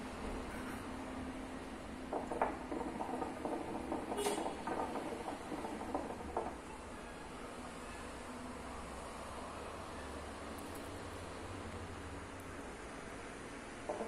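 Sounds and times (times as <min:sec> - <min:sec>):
hookah water gurgling: 0:02.1 - 0:06.8.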